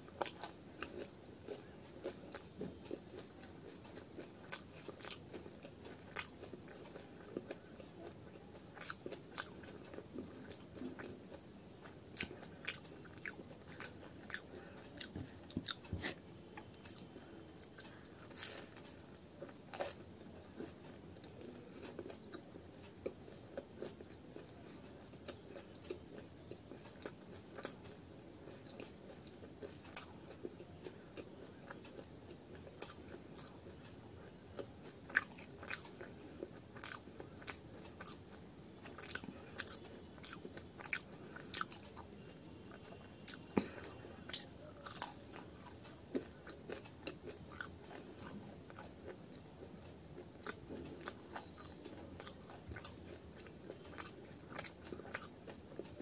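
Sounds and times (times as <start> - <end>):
person chewing crunchy food: 0.0 - 56.0.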